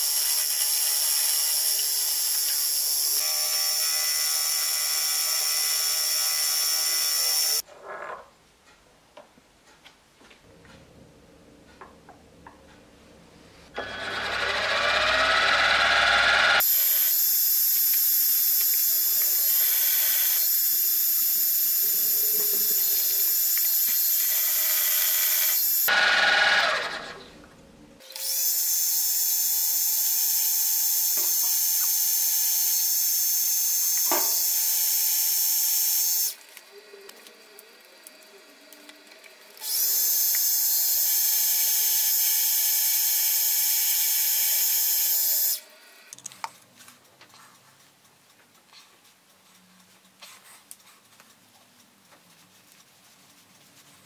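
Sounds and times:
milling machine drilling steel: 0:00.0 - 0:07.6, 0:13.8 - 0:26.9, 0:28.2 - 0:36.4.

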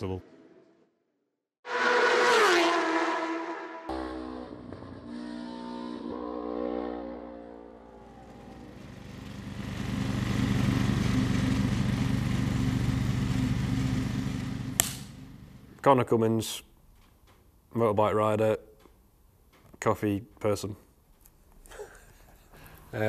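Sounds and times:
motorcycle engine passing: 0:01.7 - 0:15.7
ride-on lawn mower engine: 0:08.0 - 0:15.7.

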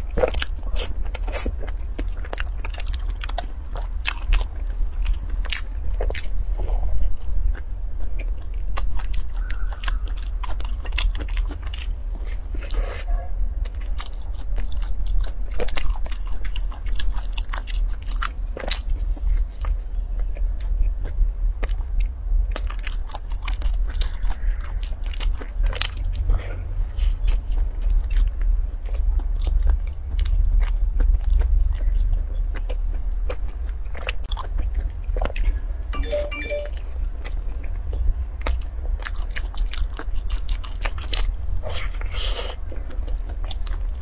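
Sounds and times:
chewing with mouth clicks: 0:00.0 - 0:13.0, 0:13.6 - 0:36.6, 0:37.2 - 0:44.0.

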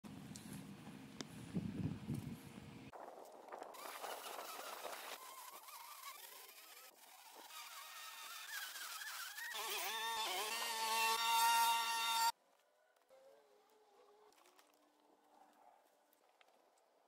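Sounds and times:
string trimmer motor: 0:03.8 - 0:12.3.

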